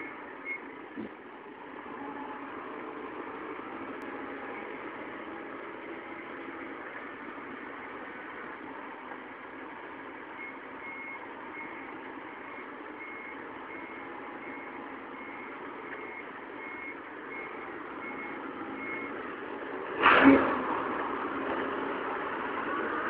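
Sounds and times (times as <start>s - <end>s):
forklift engine running: 0.0s - 23.0s
forklift reversing alarm beeping: 10.4s - 19.2s.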